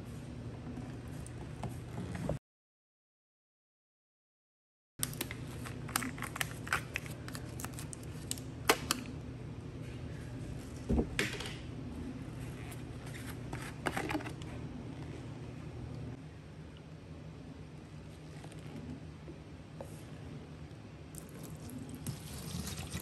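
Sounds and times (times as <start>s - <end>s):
steady low hum: 5.0s - 23.0s.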